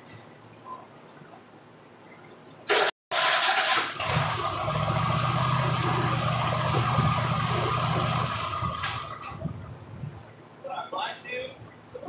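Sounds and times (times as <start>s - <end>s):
mower engine running: 3.1s - 9.4s.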